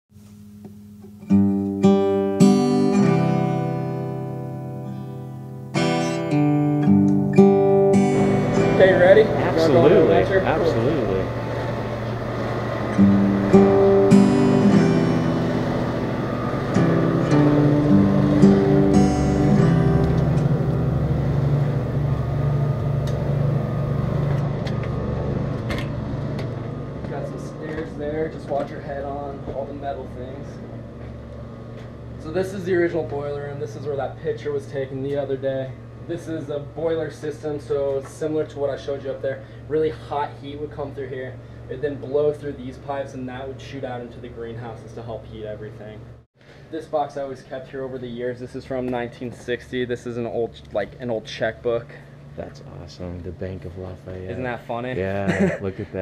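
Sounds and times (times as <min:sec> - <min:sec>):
acoustic guitar plucked notes: 0:00.2 - 0:11.7, 0:12.8 - 0:22.6
low mechanical hum: 0:07.0 - 0:56.0.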